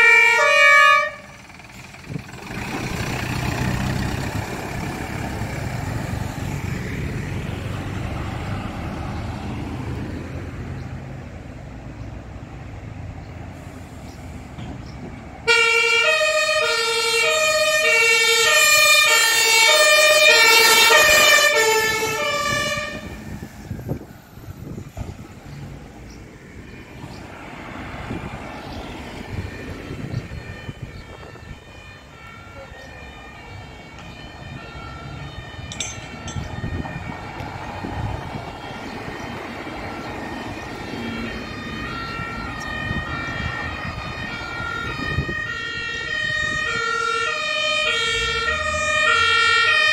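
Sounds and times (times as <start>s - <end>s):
loud two-tone siren: 0.0s - 10.4s, 15.4s - 49.9s
diesel truck engine pulling away: 0.0s - 49.9s
faint two-tone siren: 28.6s - 39.2s, 39.8s - 49.9s.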